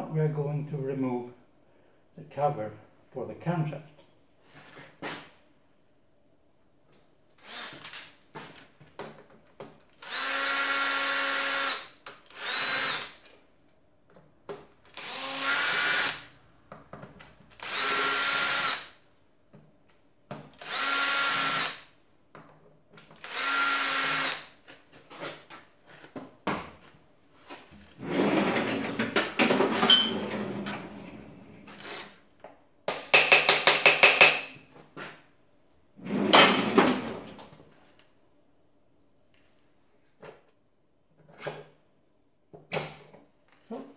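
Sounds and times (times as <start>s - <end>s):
cordless drill motor whining: 7.4s - 7.9s, 10.0s - 13.2s, 14.9s - 16.3s, 17.6s - 18.9s, 20.6s - 21.8s, 23.2s - 24.5s.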